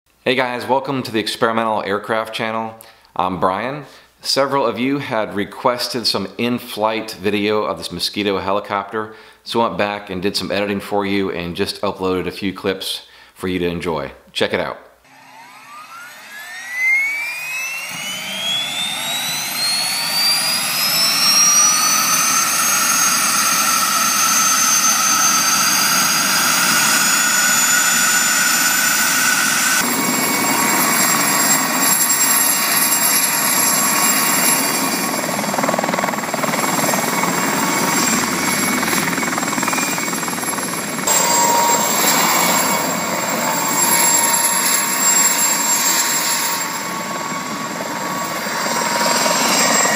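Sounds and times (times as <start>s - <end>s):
helicopter engine and rotors: 15.1s - 49.9s
helicopter engine whine rising: 15.1s - 49.9s.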